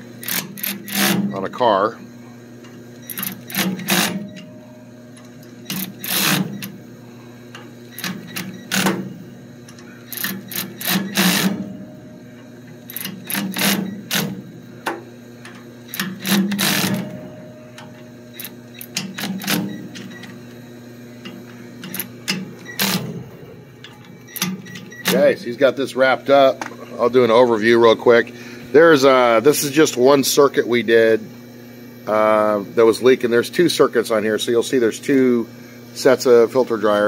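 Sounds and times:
electric ratchet running: 0.0s - 1.8s, 2.5s - 23.2s
steady hum: 0.0s - 37.0s.

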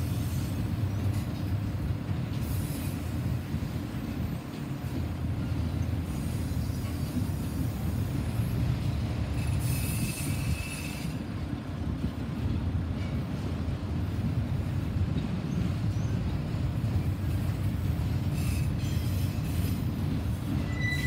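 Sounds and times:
train wheels rumbling on rails: 0.0s - 21.0s
high wheel squeal: 9.3s - 11.2s, 20.5s - 21.0s.

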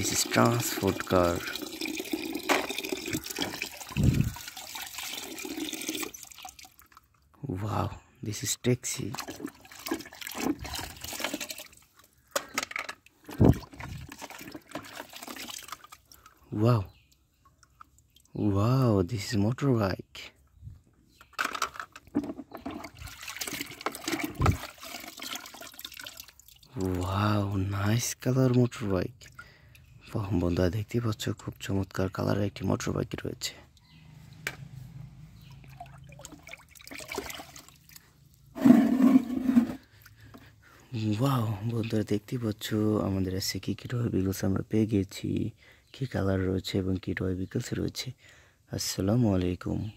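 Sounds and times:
water gushing out of bucket: 0.0s - 6.9s, 9.1s - 11.8s, 13.2s - 16.2s, 22.6s - 27.0s, 35.7s - 39.9s
water stirring in bucket: 0.0s - 7.0s, 9.0s - 11.9s, 13.2s - 16.3s, 22.1s - 27.0s, 35.7s - 40.0s
hand swishing water in bucket: 9.1s - 11.8s, 22.6s - 25.8s, 36.2s - 39.9s.

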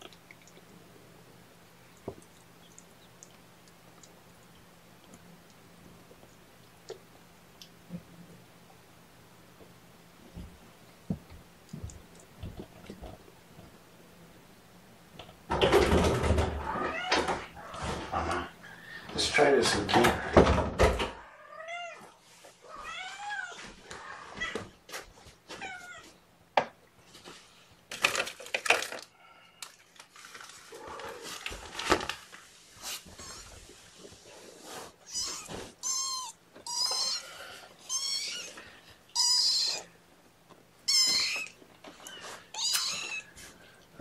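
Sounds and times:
kittens mewing: 35.0s - 40.0s, 40.8s - 43.3s.

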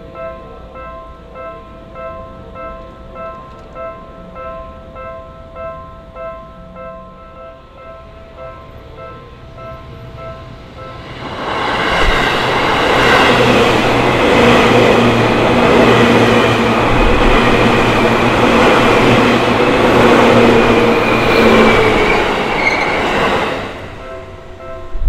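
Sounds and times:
train wheels rushing on rails: 10.8s - 24.3s.

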